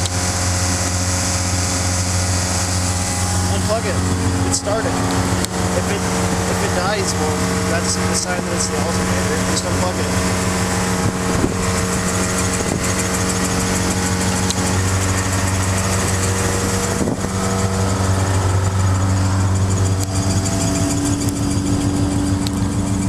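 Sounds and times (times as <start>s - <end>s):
car engine idling fast: 0.0s - 23.0s.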